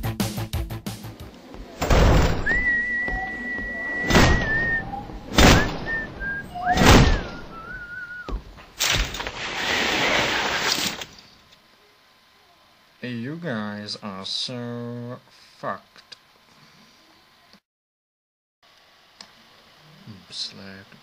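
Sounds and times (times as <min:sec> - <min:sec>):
rushing noise: 0:01.0 - 0:08.0
heavy thuds: 0:01.8 - 0:09.2
person whistling: 0:02.4 - 0:08.4.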